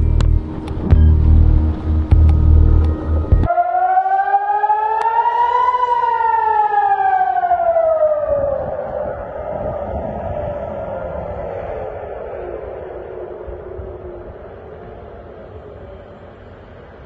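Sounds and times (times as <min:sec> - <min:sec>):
loud low sound: 0:00.0 - 0:04.8
air-raid siren wailing: 0:00.0 - 0:17.0.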